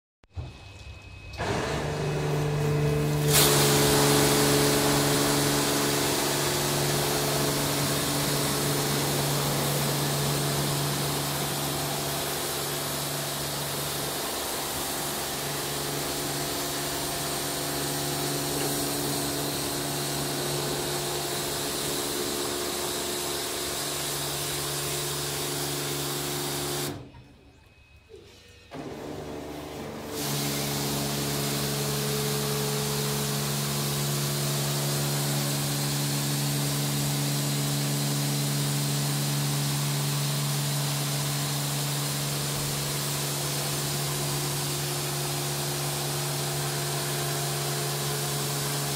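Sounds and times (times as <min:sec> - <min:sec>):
machine hum: 0:00.4 - 0:27.1
water spray hissing: 0:03.3 - 0:26.9.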